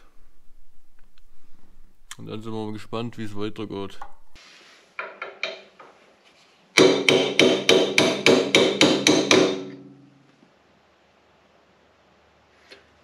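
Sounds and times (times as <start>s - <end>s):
hammer striking metal: 6.8s - 10.2s.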